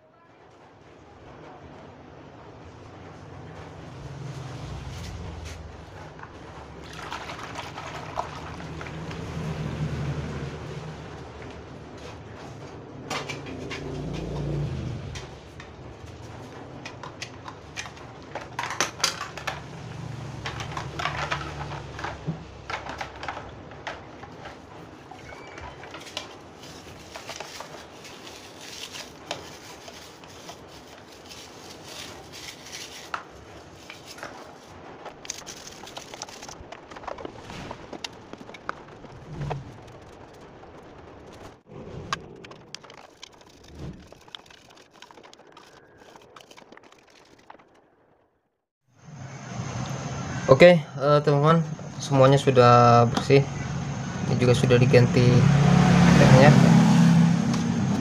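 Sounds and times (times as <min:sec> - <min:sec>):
water splashing and scrubbing: 0:02.5 - 0:47.8
plastic and metal pieces clinking: 0:16.9 - 0:19.7, 0:20.4 - 0:24.6, 0:25.2 - 0:37.3
low rumble: 0:31.6 - 0:44.2.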